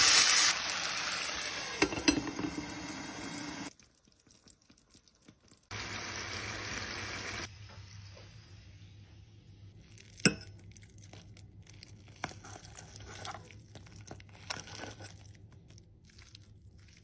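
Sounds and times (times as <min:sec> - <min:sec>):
metal knocking on plate: 0:01.8 - 0:02.6
fork scraping through crispy patty: 0:12.1 - 0:13.6.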